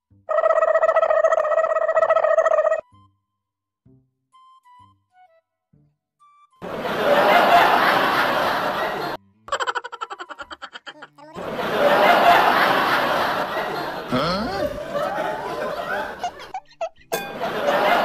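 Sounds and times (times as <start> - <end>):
crowd laughter: 6.6 - 18.0
person laughing: 7.2 - 18.0.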